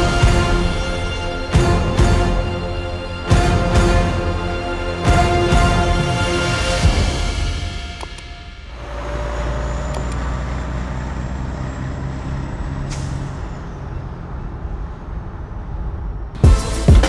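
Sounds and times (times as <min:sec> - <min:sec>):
music with loud drum hits: 0:00.0 - 0:08.0, 0:16.4 - 0:17.0
heavy truck engine droning: 0:00.0 - 0:16.8.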